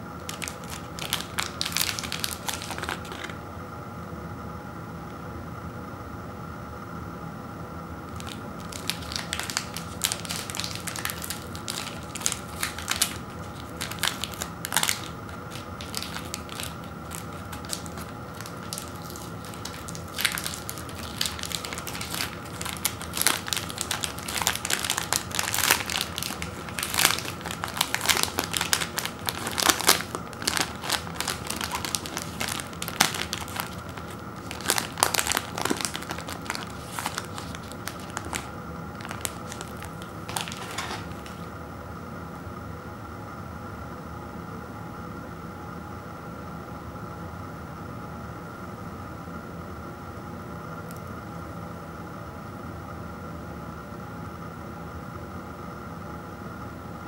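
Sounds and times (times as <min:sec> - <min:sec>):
foil wrapper crinkling: 0:00.2 - 0:03.4, 0:08.1 - 0:41.5.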